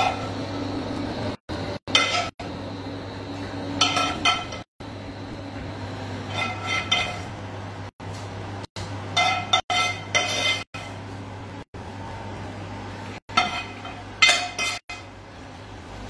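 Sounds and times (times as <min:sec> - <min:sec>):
steady low hum: 0:00.0 - 0:16.0
spoon clinking on pan and plates: 0:13.3 - 0:15.1.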